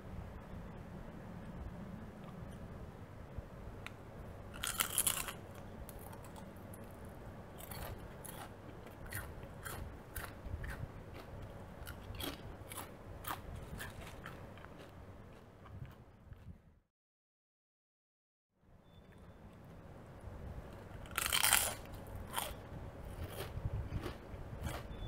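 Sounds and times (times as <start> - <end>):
potato chips crunching: 4.6 - 6.5, 7.6 - 16.5, 21.0 - 25.0.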